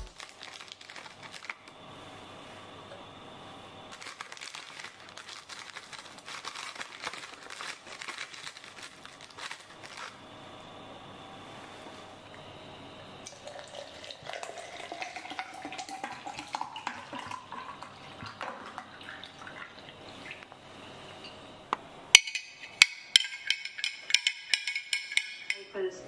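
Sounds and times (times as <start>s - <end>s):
water pouring into glass: 13.3s - 20.4s
metal straw clinking on glass: 22.2s - 25.7s.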